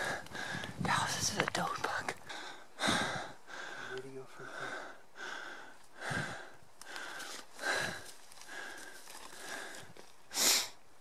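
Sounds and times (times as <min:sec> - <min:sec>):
person breathing: 0:00.0 - 0:00.8, 0:02.2 - 0:10.8.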